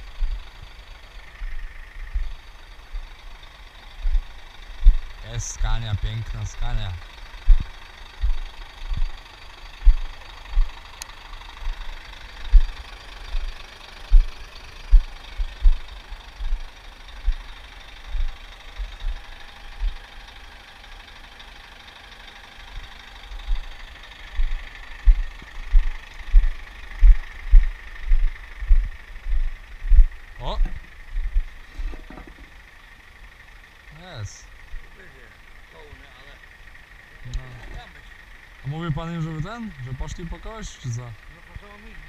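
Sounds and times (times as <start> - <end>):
truck diesel engine humming: 0.0 - 42.0
deep thumps: 7.5 - 8.4, 24.4 - 32.2.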